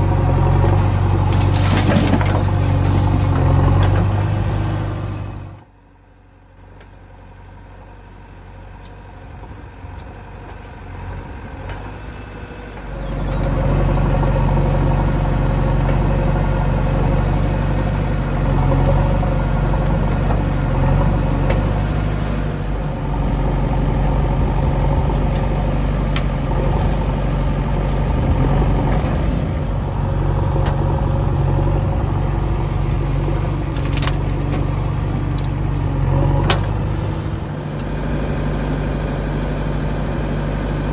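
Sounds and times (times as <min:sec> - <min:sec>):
diesel engines droning: 0:00.0 - 0:40.9
bucket dumping soil clatter: 0:01.1 - 0:04.0.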